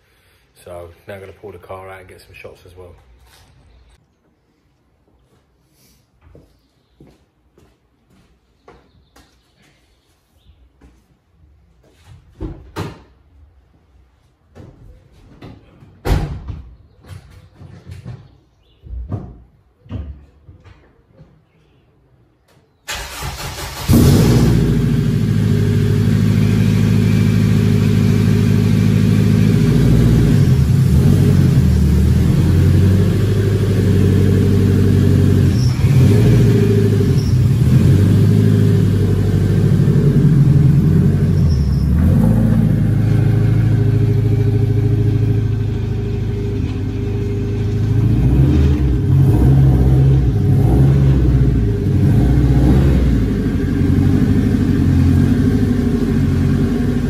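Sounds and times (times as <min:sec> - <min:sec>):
car engine at low revs: 0:23.8 - 0:57.0.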